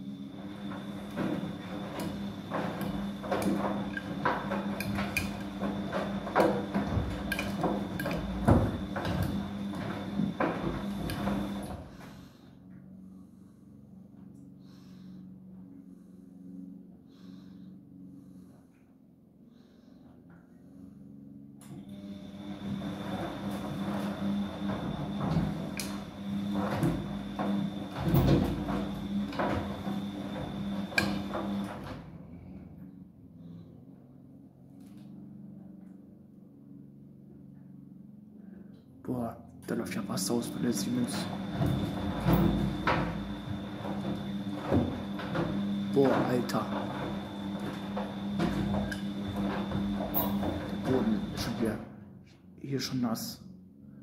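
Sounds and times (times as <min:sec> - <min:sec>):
washing machine motor hum: 0:00.0 - 0:54.0
laundry tumbling and sloshing: 0:00.2 - 0:12.2, 0:21.9 - 0:32.0, 0:40.4 - 0:51.8.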